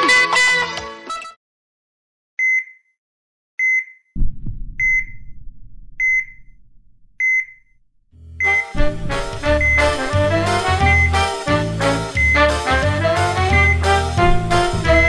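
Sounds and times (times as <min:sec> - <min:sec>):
low background rumble: 0:04.2 - 0:10.4
patient monitor pulse beeps: 0:04.8 - 0:05.2, 0:06.0 - 0:06.4, 0:07.2 - 0:07.7, 0:08.4 - 0:08.7, 0:09.6 - 0:10.0.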